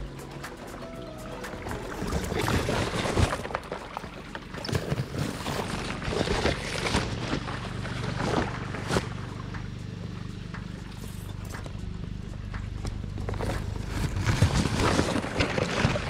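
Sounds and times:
water rushing and splashing: 0.0 - 9.0.

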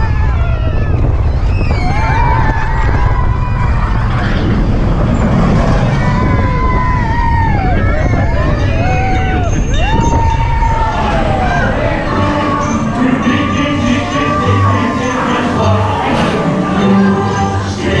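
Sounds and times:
wind on microphone: 0.0 - 12.4
roller coaster wheels rumbling: 0.0 - 18.0
long high-pitched sounds: 9.4 - 18.0.

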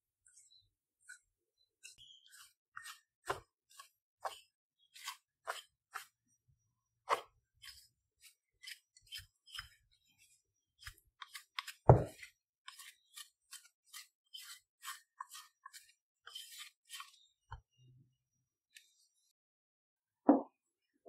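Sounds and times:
spatula scraping dough in bowl: 1.8 - 6.2, 7.1 - 17.3.

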